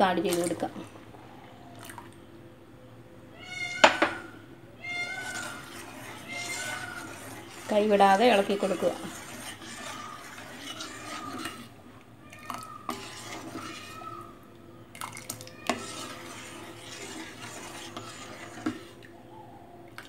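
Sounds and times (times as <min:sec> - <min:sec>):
ladle scraping round a pot: 0:04.9 - 0:14.4, 0:15.0 - 0:19.1.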